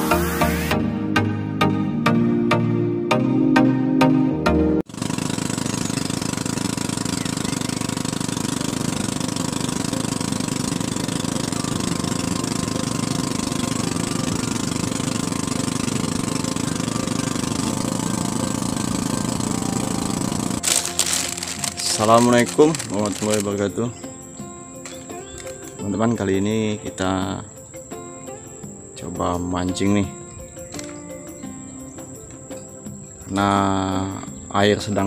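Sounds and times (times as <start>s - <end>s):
boat engine running: 4.9s - 27.1s.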